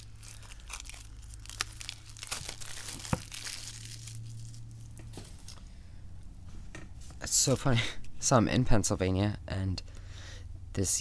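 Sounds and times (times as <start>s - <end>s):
paper crinkling and rustling: 0.0s - 5.6s
low steady hum: 0.0s - 11.0s.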